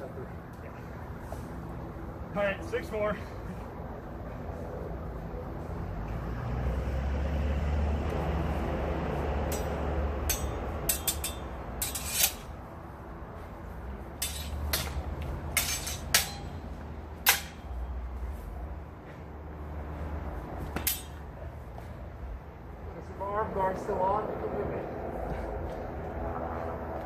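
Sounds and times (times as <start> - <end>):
swords clashing: 9.5 - 12.5, 14.2 - 16.6, 17.2 - 17.7, 20.8 - 21.2.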